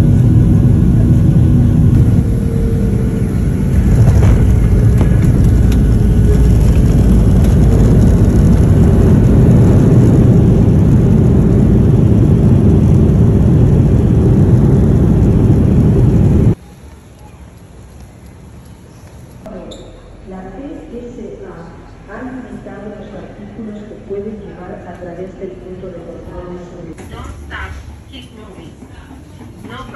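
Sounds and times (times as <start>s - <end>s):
jet engine and airflow rumble: 0.0s - 17.1s.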